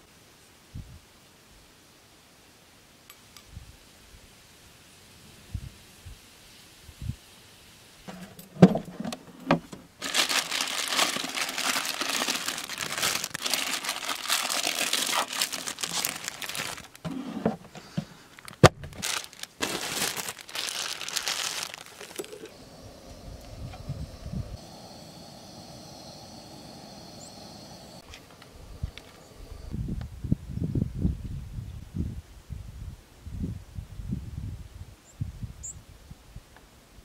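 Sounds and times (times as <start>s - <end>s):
plastic bags crinkling: 10.0s - 17.1s, 18.3s - 22.5s.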